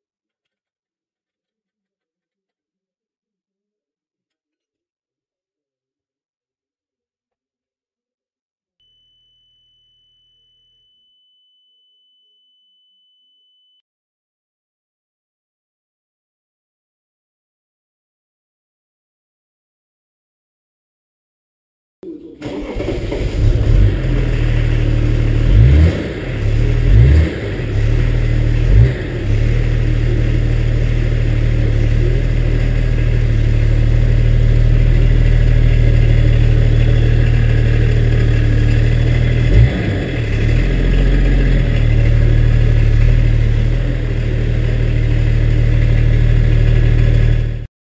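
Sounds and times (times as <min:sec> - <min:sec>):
diesel engine idling: 0:22.4 - 0:47.7.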